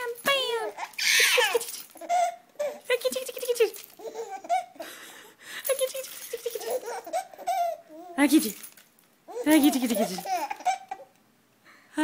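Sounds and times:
baby laughing: 0.6 - 5.0, 5.7 - 8.2, 9.3 - 11.2.

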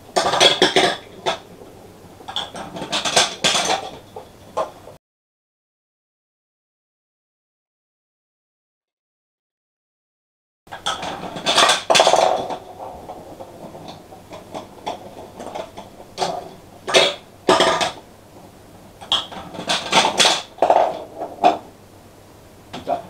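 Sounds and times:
plastic balls clattering in marble run: 0.2 - 1.6, 2.2 - 4.8, 10.7 - 18.0, 19.0 - 21.7.

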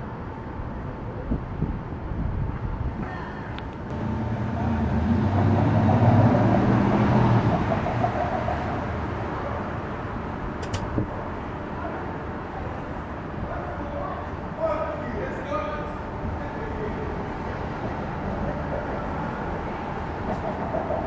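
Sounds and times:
vehicle passing with droning hum: 0.0 - 21.0
brief sharp click: 10.6 - 10.9.

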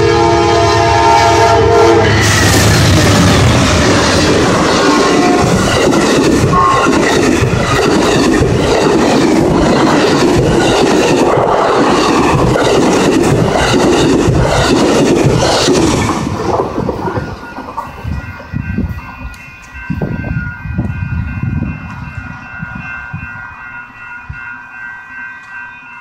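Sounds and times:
train wheels rushing on rails: 0.0 - 26.0
wheels clacking on rail joints: 3.5 - 20.2.

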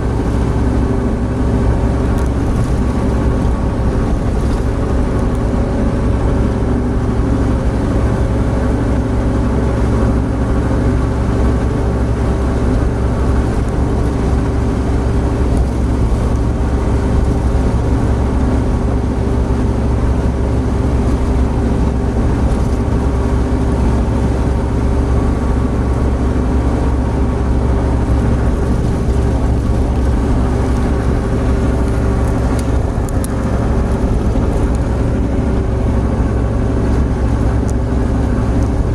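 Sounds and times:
car engine drone inside cabin: 0.0 - 38.9
road and wind noise: 0.0 - 38.9.

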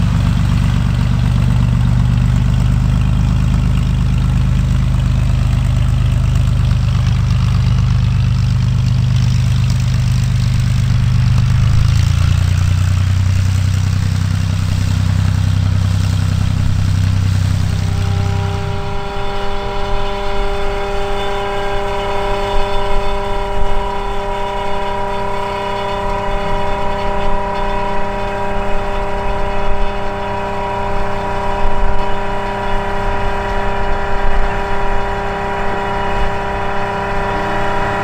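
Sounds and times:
aircraft engine idling: 0.0 - 38.0.

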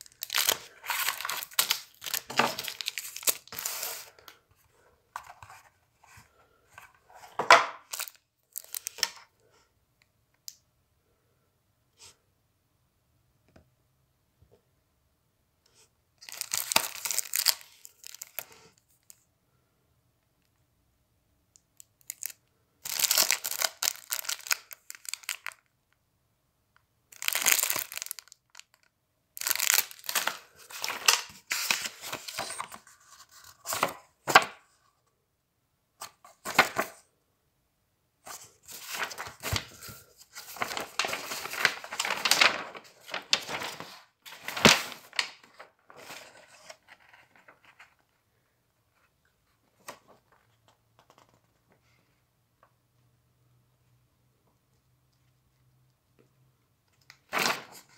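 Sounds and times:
packaging rustling: 0.0 - 4.2, 16.2 - 18.4, 22.9 - 25.6, 27.2 - 28.7, 29.4 - 34.0, 38.3 - 47.9.

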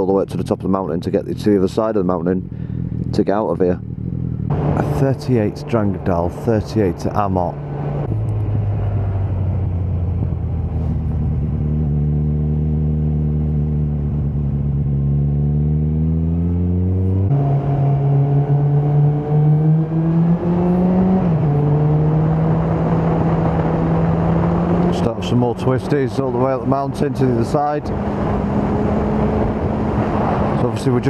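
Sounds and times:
motorcycle engine accelerating: 1.3 - 31.0
rush of wind: 19.7 - 31.0.

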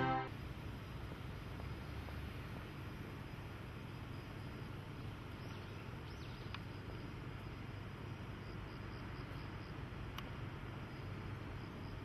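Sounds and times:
low outdoor background rumble: 0.0 - 12.0.

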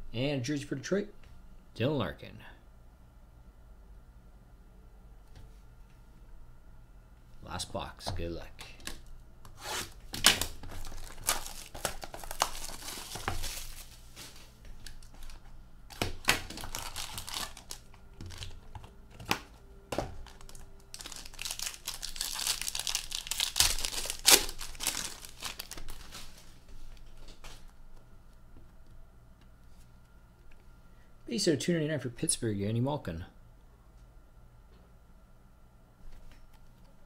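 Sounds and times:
cardboard rustling: 9.6 - 15.4
plastic wrapping crinkling: 10.1 - 27.8.

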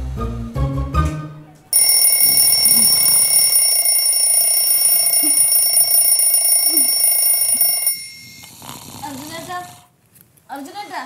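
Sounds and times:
alarm clock ringing: 1.7 - 8.5.

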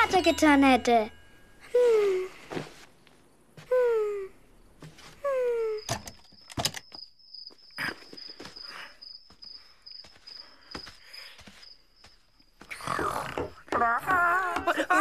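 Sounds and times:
soft footsteps: 2.4 - 3.9, 7.5 - 15.0
cricket chirping: 3.1 - 15.0.

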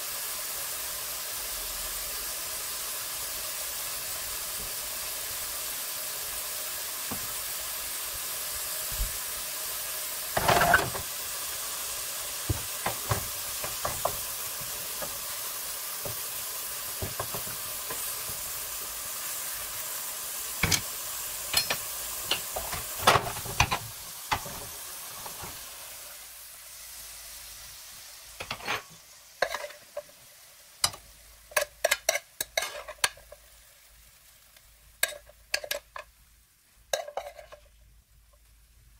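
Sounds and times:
food sizzling in a frying pan: 0.0 - 38.9
spatula knocking against pan: 12.5 - 15.2.

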